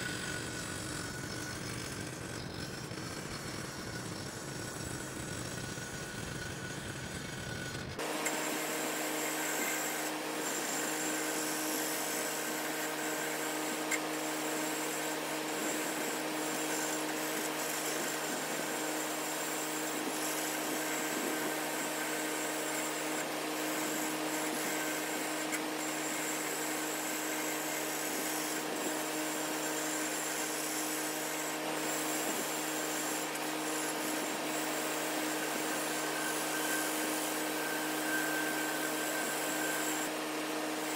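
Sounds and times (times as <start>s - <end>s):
wood lathe motor hum: 0.0s - 40.9s
gouge rasping on wood: 8.2s - 40.9s.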